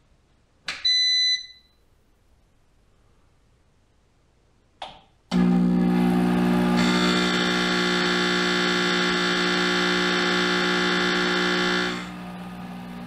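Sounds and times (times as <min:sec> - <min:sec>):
high whine: 0:05.4 - 0:13.0.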